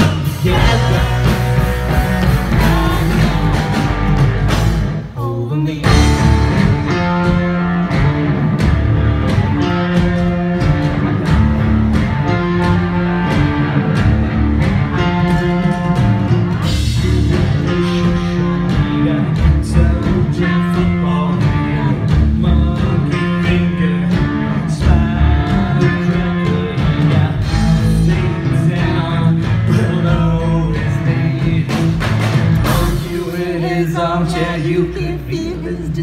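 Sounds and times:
person singing: 0:00.0 - 0:04.0
live rock band: 0:00.0 - 0:36.0.

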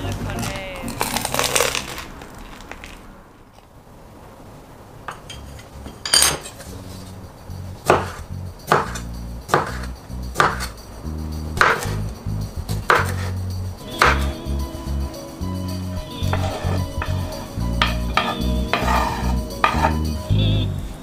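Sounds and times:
cleaver chopping on wooden board: 0:07.9 - 0:10.7, 0:11.6 - 0:12.0, 0:12.9 - 0:13.3, 0:14.0 - 0:14.4.

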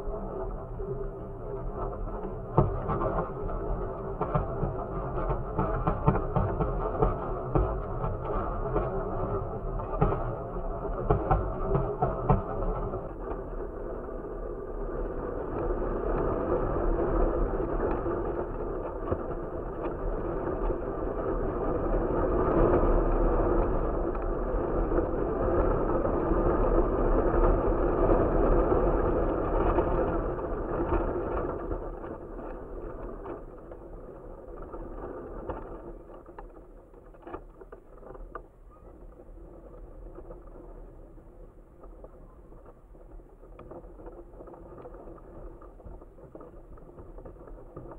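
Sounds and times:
wind rushing over microphone: 0:00.0 - 0:37.0.

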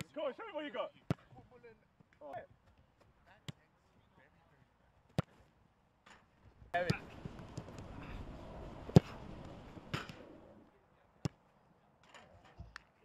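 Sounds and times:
steady rushing noise: 0:06.8 - 0:10.7
football kicked hard: 0:08.9 - 0:09.2.

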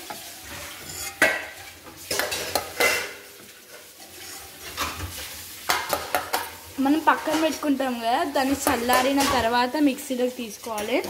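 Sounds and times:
utensil scraping steel jar: 0:00.6 - 0:01.2.

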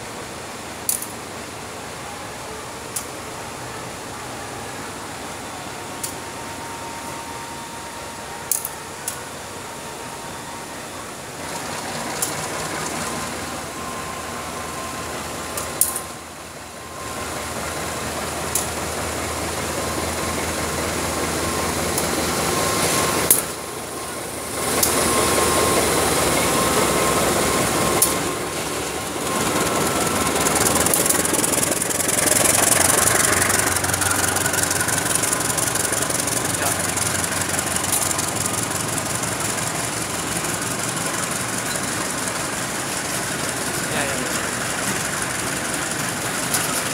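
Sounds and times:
diesel locomotive running past: 0:00.0 - 0:46.9
train coaches rolling by: 0:00.0 - 0:46.9
wheels clicking over rail joints: 0:00.9 - 0:01.2, 0:08.5 - 0:09.2, 0:11.4 - 0:13.4, 0:15.5 - 0:16.2, 0:17.2 - 0:22.4, 0:23.2 - 0:23.7, 0:24.6 - 0:46.9.

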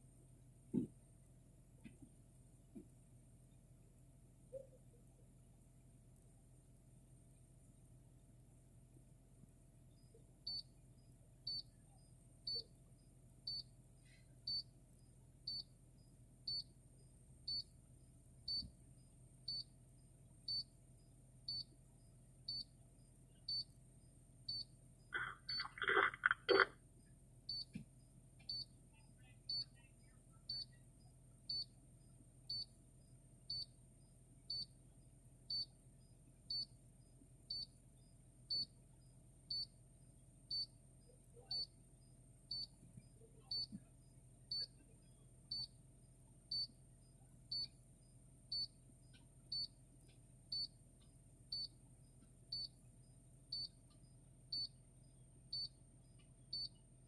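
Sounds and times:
short high beeps: 0:25.2 - 0:26.7.

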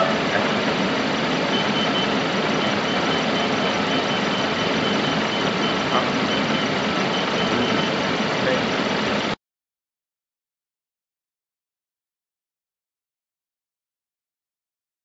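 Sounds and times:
engine idling: 0:00.0 - 0:09.4.

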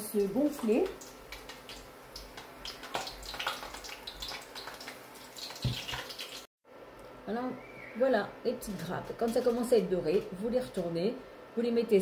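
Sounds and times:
batter frying in hot oil: 0:00.0 - 0:06.5.

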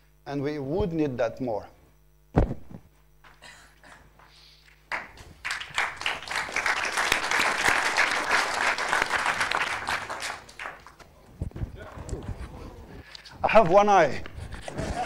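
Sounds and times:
thump: 0:02.3 - 0:02.9
audience applause: 0:04.9 - 0:11.0.

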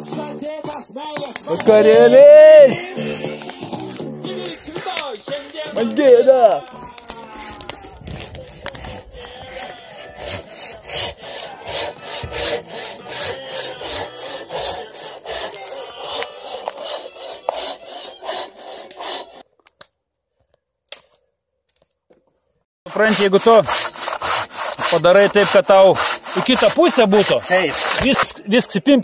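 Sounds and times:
hand saw cutting log: 0:02.8 - 0:19.4, 0:22.9 - 0:28.4.

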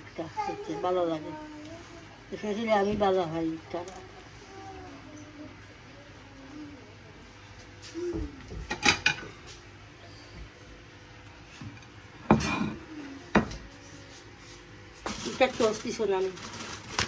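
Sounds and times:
utensils and dishes clinking: 0:08.6 - 0:09.4, 0:12.3 - 0:12.8.

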